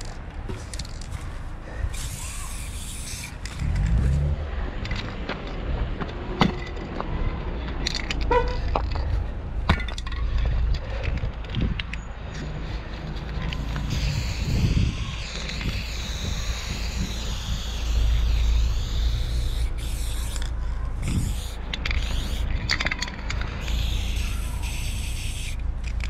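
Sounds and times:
street noise: 0.0s - 26.0s
wind: 0.0s - 26.0s
spray paint can hissing: 1.8s - 4.3s, 12.6s - 26.0s.

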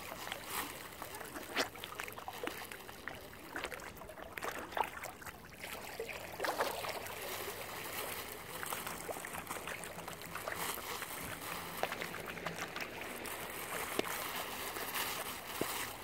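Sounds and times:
lake water lapping: 0.0s - 16.0s
swan feeding splashes: 0.0s - 16.0s.

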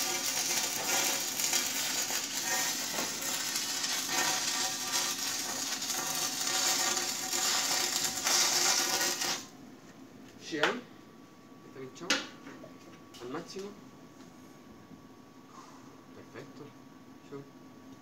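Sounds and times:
welding arc crackling and sizzling: 0.0s - 9.6s.

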